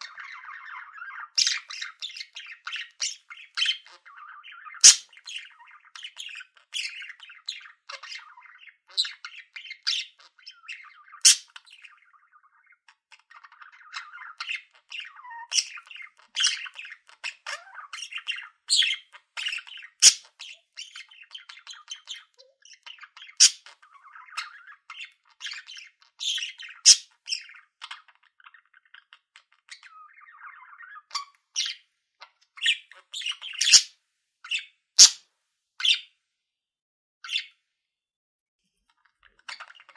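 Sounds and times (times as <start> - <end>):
budgerigars chattering: 0.0 - 31.8, 32.4 - 33.9, 34.5 - 35.2, 35.8 - 36.1, 39.2 - 39.9.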